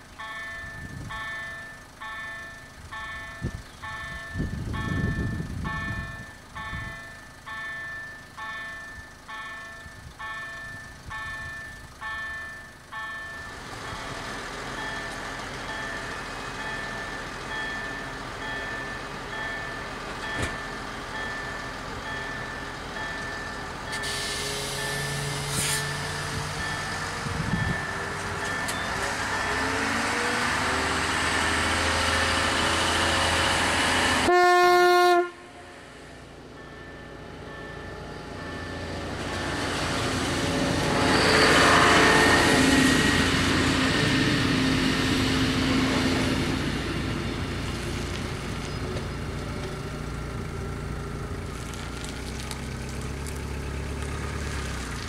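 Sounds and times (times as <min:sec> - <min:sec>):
train running noise passing: 0:00.0 - 0:51.7
train engine pulling away: 0:00.0 - 0:55.0
train horn blast: 0:34.2 - 0:35.8, 0:41.2 - 0:42.8.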